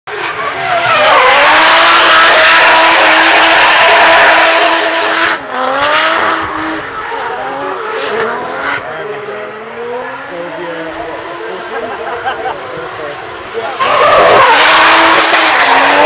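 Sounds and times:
car engine at high revs: 0.1s - 16.0s.

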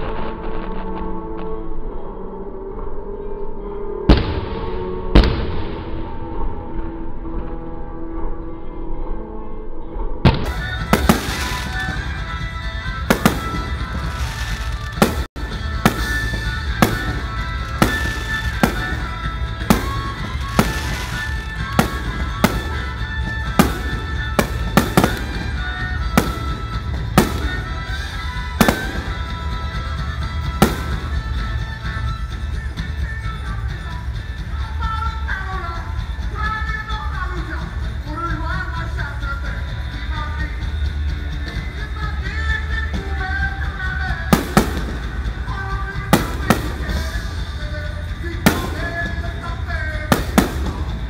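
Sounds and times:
music playing: 0.0s - 51.0s
fireworks bangs: 10.3s - 32.8s, 44.2s - 51.0s.

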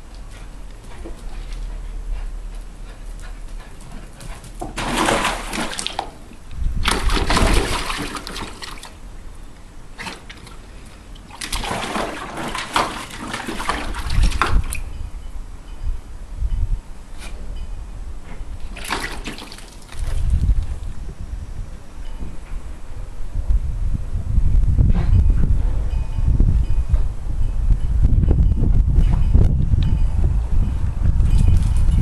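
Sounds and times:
dog splashing in shallow water: 4.6s - 6.2s, 6.8s - 9.0s, 11.2s - 14.8s, 18.6s - 20.3s.

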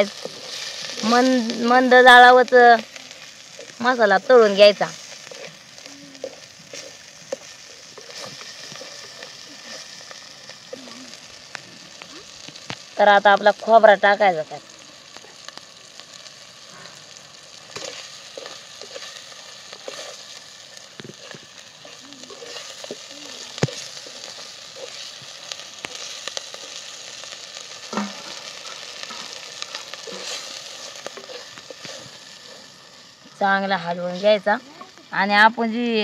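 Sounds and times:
paste sizzling in oil: 0.0s - 36.0s
wooden spatula scraping pot: 4.5s - 5.6s, 6.2s - 10.0s, 17.8s - 20.2s, 21.0s - 26.8s, 27.9s - 32.7s.

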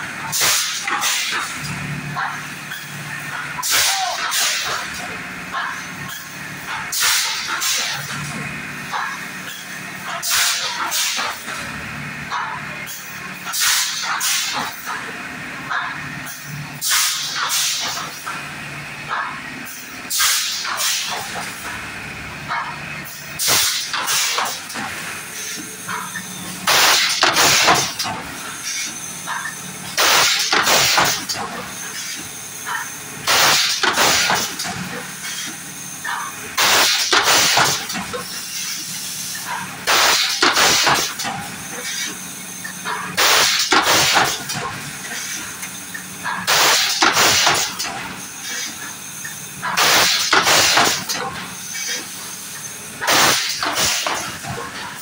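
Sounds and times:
compressed air hisses: 16.8s - 18.1s, 29.9s - 45.6s, 46.4s - 54.4s.

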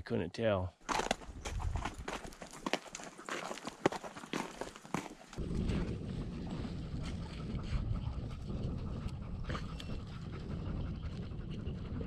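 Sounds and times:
wind buffeting the microphone: 1.2s - 2.3s, 5.4s - 12.0s.

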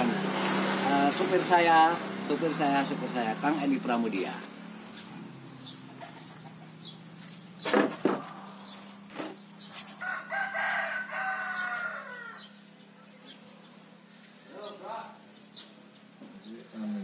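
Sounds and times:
rooster crowing: 9.9s - 12.7s.

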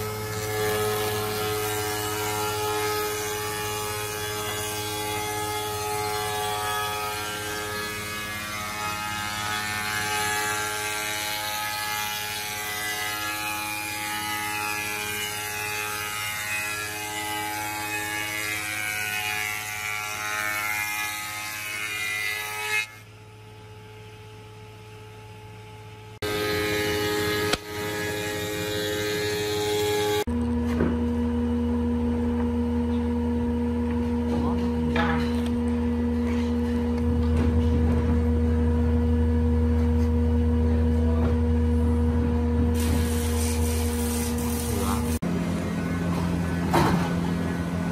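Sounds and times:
wood shaper whining and cutting: 0.0s - 23.2s, 26.2s - 30.4s, 42.7s - 47.9s
faint machine hum: 0.0s - 47.9s.

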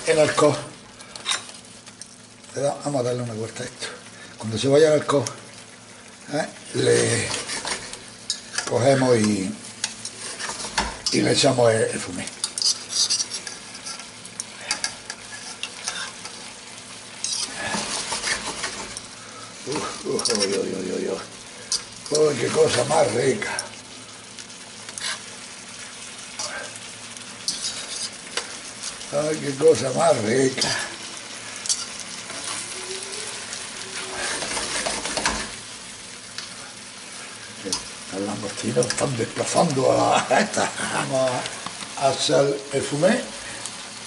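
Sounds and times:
seafood sizzling in a frying pan: 0.0s - 44.0s
tongs clicking and scraping pan: 1.0s - 2.2s, 7.0s - 11.5s, 12.3s - 23.8s, 24.4s - 32.7s, 34.2s - 35.6s, 36.3s - 36.6s, 37.5s - 42.0s.

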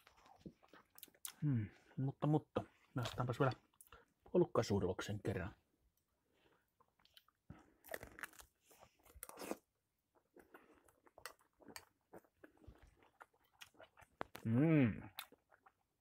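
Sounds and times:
person chewing: 0.0s - 1.6s, 6.5s - 16.0s.

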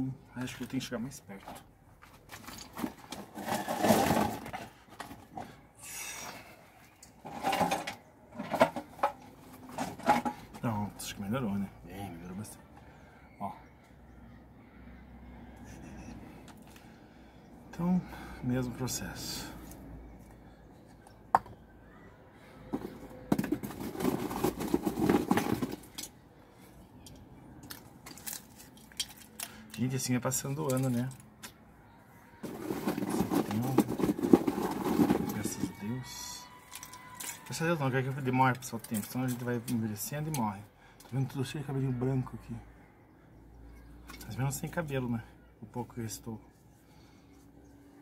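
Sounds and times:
rustling and scraping: 1.4s - 5.6s, 6.2s - 11.0s, 22.7s - 26.1s, 32.4s - 39.7s.

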